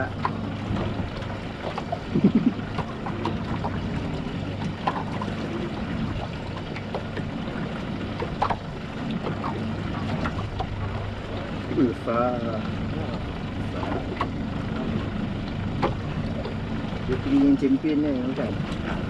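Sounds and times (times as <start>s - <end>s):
boat engine humming: 0.0s - 19.0s
water wash: 0.0s - 19.0s
wind noise: 2.0s - 2.7s.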